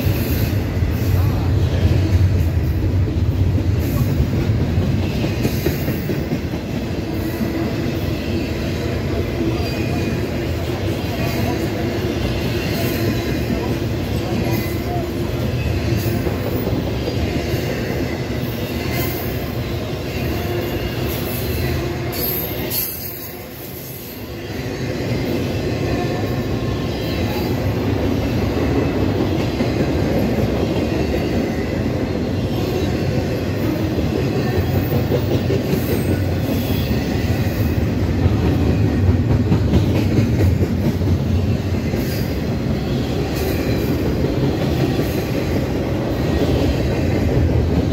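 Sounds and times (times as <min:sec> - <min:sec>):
train wheels clattering over rails: 0:00.0 - 0:24.4, 0:25.0 - 0:47.9.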